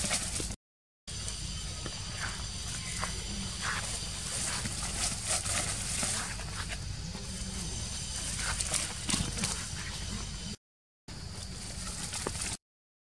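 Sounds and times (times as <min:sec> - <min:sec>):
leaves and twigs rustling crackling: 0:00.0 - 0:00.6, 0:01.2 - 0:10.5, 0:11.2 - 0:12.6.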